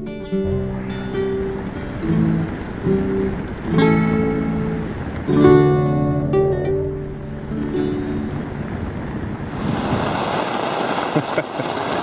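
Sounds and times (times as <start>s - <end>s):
acoustic guitar: 0.0s - 9.3s
heavy rain pouring: 0.0s - 12.0s.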